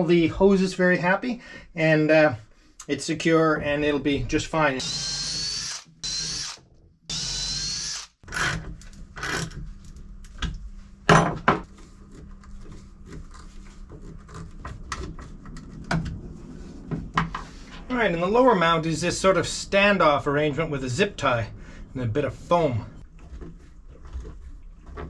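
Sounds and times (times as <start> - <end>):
cordless drill whining: 4.8 - 8.6.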